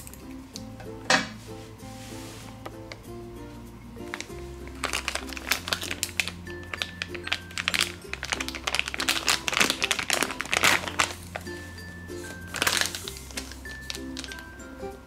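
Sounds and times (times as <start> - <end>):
background music: 0.0 - 15.0
plastic bag crackling: 4.0 - 14.5.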